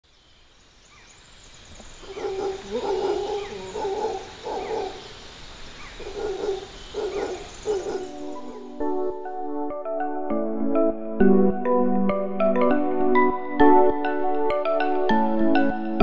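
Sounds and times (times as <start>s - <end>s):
faint bird chirps: 0.0s - 8.6s
high insect hiss: 0.0s - 8.7s
animal barking calls: 1.8s - 8.8s.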